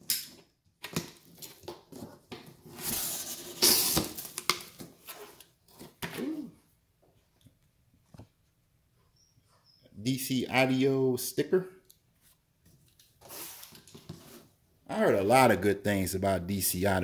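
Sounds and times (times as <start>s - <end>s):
packing tape ripping: 2.7s - 4.8s.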